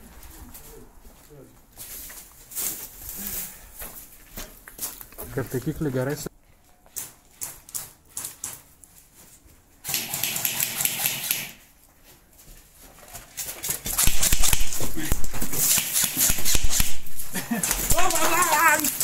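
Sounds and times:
airsoft guns firing rapid bursts: 9.9s - 11.6s, 14.0s - 14.8s, 15.5s - 17.0s.

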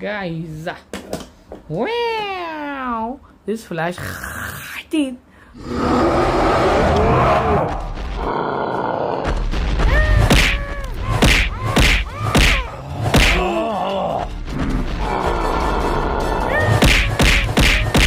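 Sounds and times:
background music: 7.2s - 18.0s
pained grunts and cries: 8.9s - 17.3s
cartoon punches and whacks: 9.3s - 13.6s, 16.6s - 18.0s.

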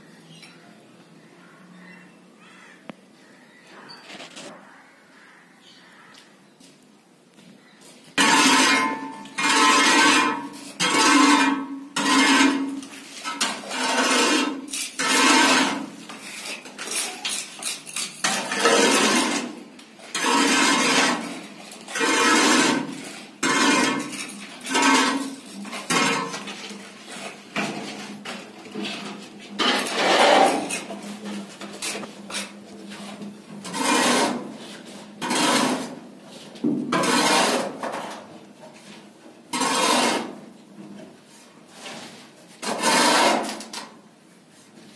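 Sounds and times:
metal straightedge scraping plaster: 8.2s - 36.1s, 36.9s - 38.2s, 39.5s - 40.5s, 41.7s - 43.9s.

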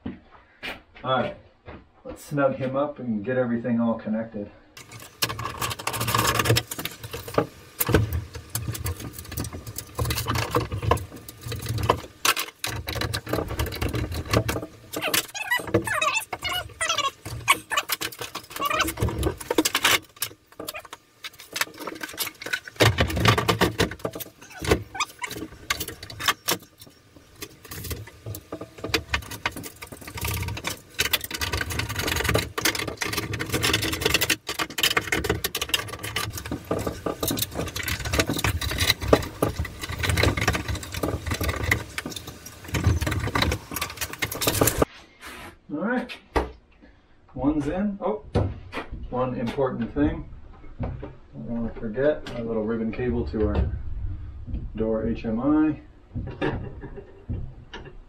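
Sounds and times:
hand tools and hardware clicking: 4.8s - 44.9s.

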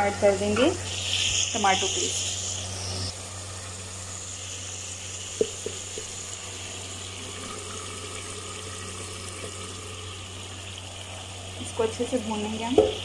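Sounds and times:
meat sizzling in hot oil: 0.0s - 13.0s
knock: 12.8s - 13.0s.

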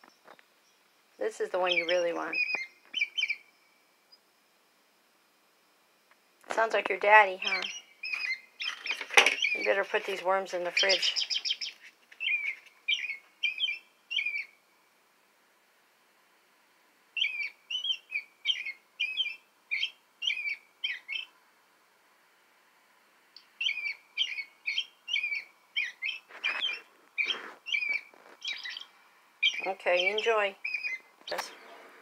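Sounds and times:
bird song through small speaker: 0.1s - 3.4s, 6.8s - 14.6s, 17.2s - 21.3s, 23.4s - 32.0s.

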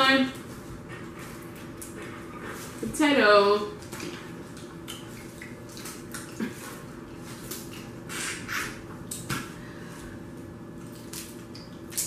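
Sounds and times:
wet squishing and slurping: 3.8s - 12.0s.

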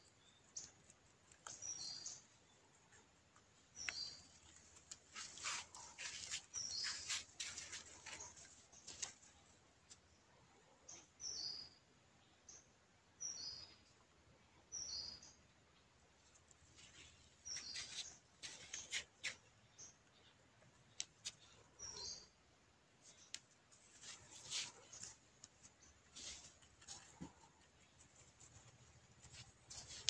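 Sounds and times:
rabbit nibbling plants: 0.0s - 9.4s, 23.0s - 30.0s.

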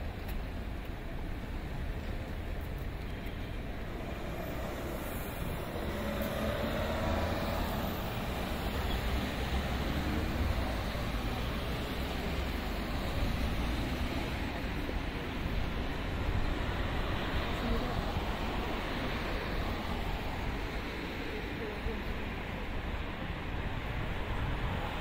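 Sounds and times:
road traffic rumble: 0.0s - 25.0s
vehicle passing: 3.9s - 14.4s.

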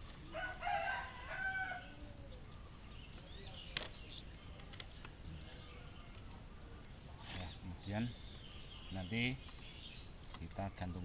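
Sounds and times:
small bird chirping: 0.0s - 11.0s
rooster crowing: 0.3s - 2.3s.

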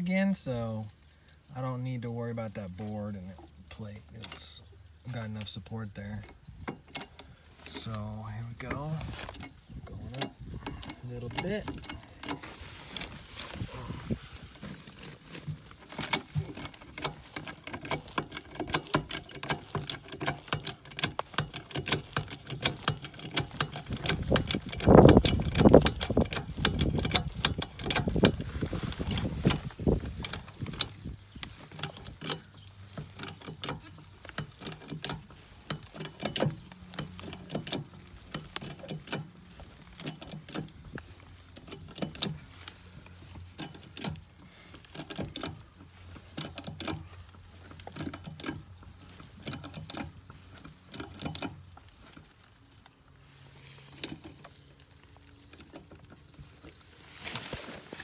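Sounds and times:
jack clicking and rattling: 0.0s - 58.0s
heavy low rumble: 2.7s - 17.4s.

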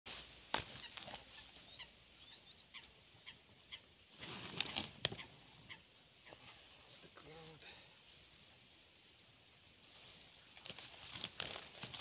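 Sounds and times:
dry grass rustling: 0.1s - 3.4s, 4.0s - 7.3s, 8.6s - 12.0s
small birds chirping: 0.4s - 12.0s.

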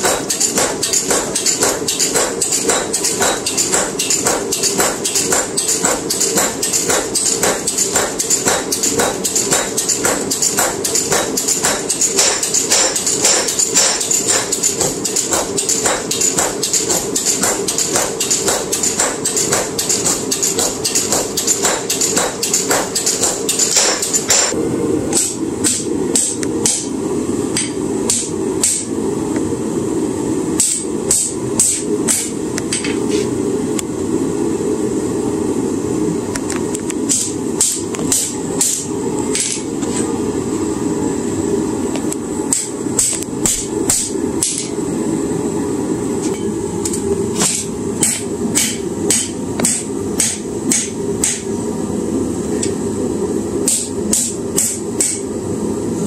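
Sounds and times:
hammer striking metal on anvil: 0.0s - 28.9s, 30.6s - 33.2s, 37.1s - 39.7s, 42.5s - 44.8s, 46.2s - 51.5s, 53.6s - 55.3s.

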